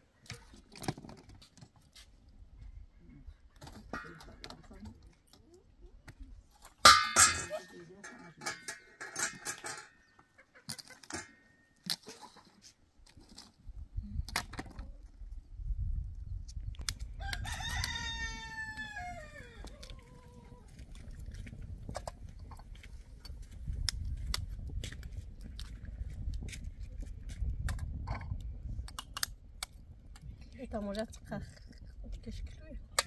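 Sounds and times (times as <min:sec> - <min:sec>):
rooster crowing: 0:17.2 - 0:19.9.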